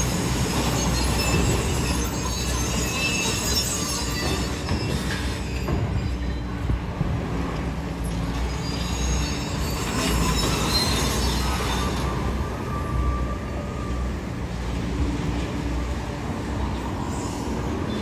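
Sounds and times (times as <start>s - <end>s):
metallic squeals and scraping: 0.0s - 6.8s, 8.0s - 14.4s
road traffic passing: 6.5s - 18.0s.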